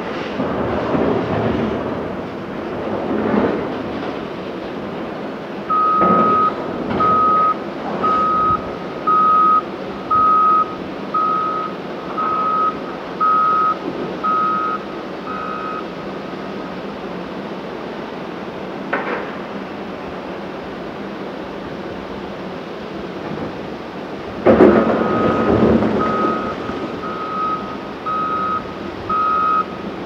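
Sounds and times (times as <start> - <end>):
diesel engine running: 0.0 - 30.0
back-up alarm beeping: 5.7 - 15.9, 25.0 - 29.8.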